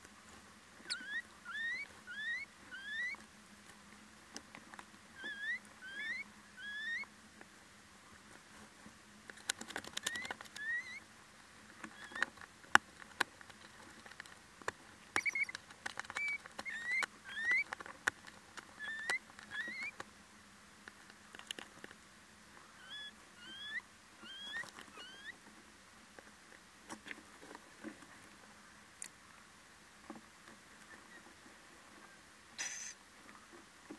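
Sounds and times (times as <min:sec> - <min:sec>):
owls squeaky calls: 0:00.9 - 0:03.2, 0:05.2 - 0:07.1, 0:10.0 - 0:11.0, 0:12.0 - 0:12.3, 0:15.2 - 0:17.7, 0:18.8 - 0:20.0, 0:22.7 - 0:25.4.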